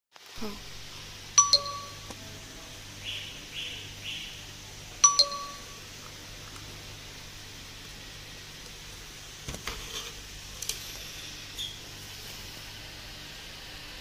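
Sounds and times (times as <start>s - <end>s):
low electrical hum: 0.2s - 14.0s
electronic chime dings: 1.4s - 2.1s, 5.0s - 5.8s.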